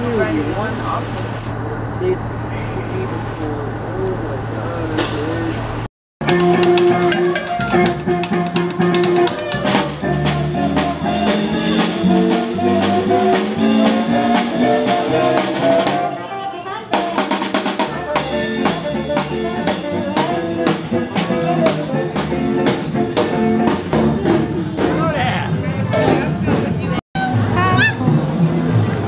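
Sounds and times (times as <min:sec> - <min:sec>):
upright double bass: 0:00.0 - 0:16.3, 0:16.9 - 0:29.0
guitar: 0:03.6 - 0:29.0
drum kit beat: 0:06.2 - 0:29.0.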